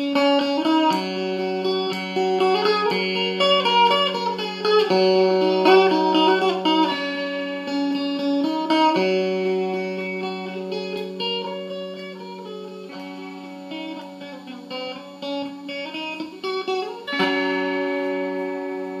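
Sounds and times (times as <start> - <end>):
plucked lute melody: 0.0 - 19.0.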